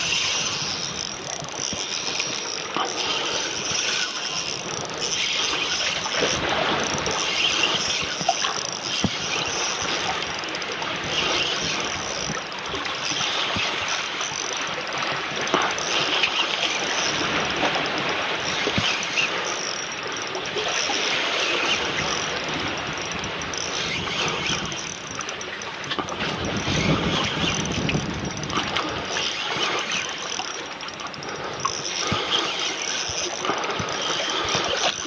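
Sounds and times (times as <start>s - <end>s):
sea water at shoreline: 0.0s - 35.0s.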